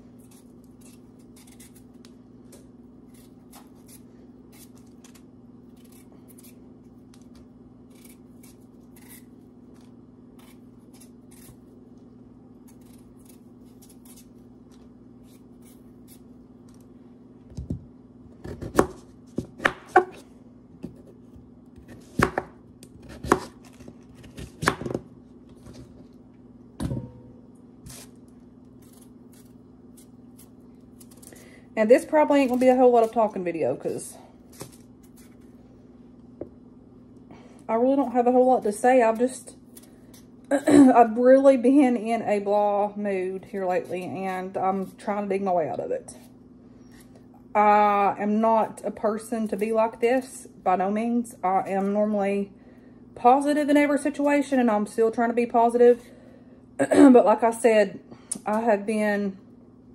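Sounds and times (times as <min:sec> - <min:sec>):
steady low hum: 0:00.0 - 0:59.9
knife scraping potato skins: 0:00.2 - 0:02.2, 0:03.0 - 0:07.3, 0:07.9 - 0:11.7, 0:12.6 - 0:14.5, 0:15.2 - 0:16.8.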